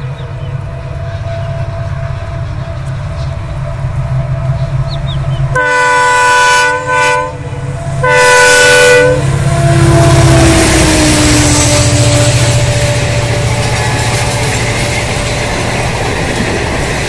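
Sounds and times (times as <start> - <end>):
locomotive air horn blasts: 0.6 - 3.4, 5.5 - 16.0.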